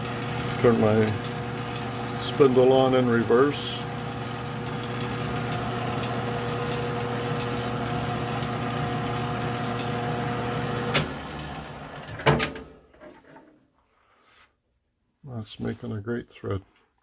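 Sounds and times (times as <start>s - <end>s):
lathe motor and gear hum: 0.0s - 12.3s.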